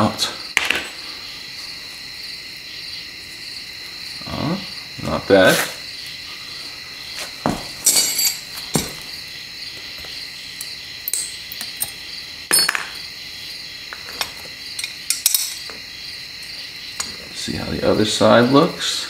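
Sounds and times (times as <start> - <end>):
pliers clinking on aluminium: 7.8 - 9.0, 10.6 - 13.0, 14.2 - 15.8.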